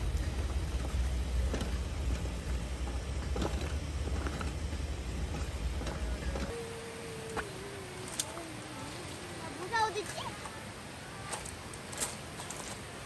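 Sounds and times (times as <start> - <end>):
boiling pot ticking and popping: 0.0 - 6.5
gas burner roaring: 0.0 - 10.0.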